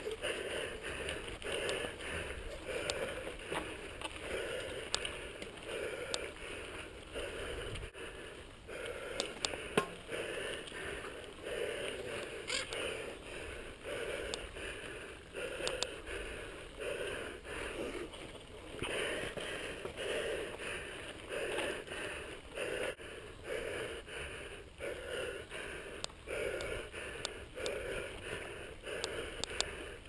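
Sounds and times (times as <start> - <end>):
tyres rolling on gravel: 0.0 - 7.0.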